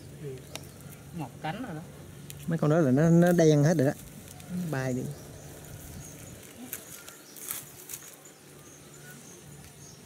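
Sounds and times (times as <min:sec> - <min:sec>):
faint insect or bird chirps: 0:00.0 - 0:10.0
low steady hum: 0:00.0 - 0:10.0
hands picking apart palm fibres: 0:03.2 - 0:04.7, 0:05.9 - 0:08.3.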